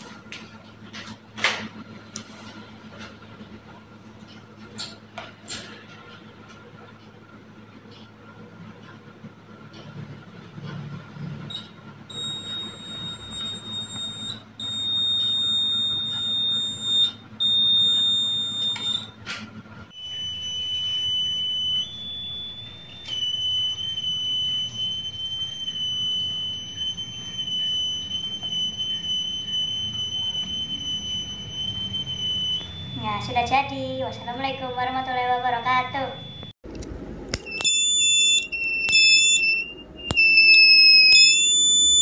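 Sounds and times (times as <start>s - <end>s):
high-pitched buzzer alarm tone: 11.5s - 19.2s, 20.0s - 36.6s, 37.5s - 42.0s
lower-pitched buzzer tone: 11.5s - 19.2s, 20.0s - 36.6s, 37.5s - 42.0s.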